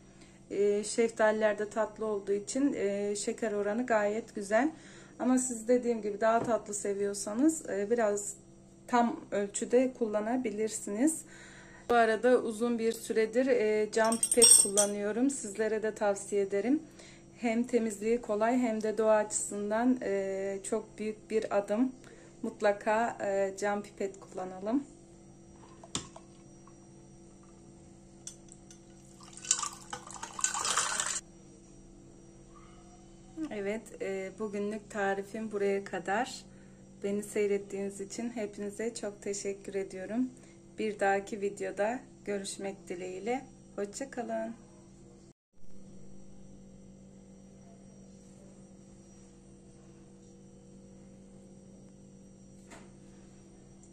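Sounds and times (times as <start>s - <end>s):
liquid pouring into a glass: 28.9s - 31.2s
faint high whine: 42.4s - 53.9s
low hum: 45.6s - 53.9s.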